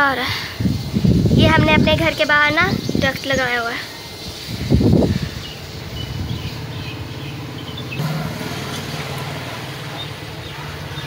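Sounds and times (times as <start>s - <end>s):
motor engine humming: 5.7s - 11.0s.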